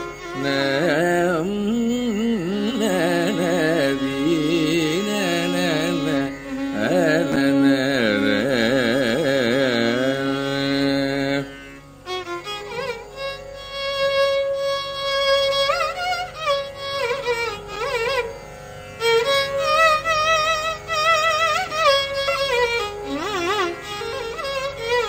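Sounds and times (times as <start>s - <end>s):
violin playing: 0.0s - 25.0s
man singing: 0.4s - 11.5s.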